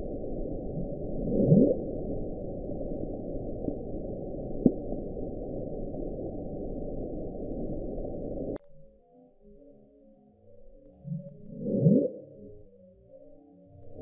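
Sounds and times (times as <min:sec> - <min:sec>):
low underwater rush: 0:00.0 - 0:08.6.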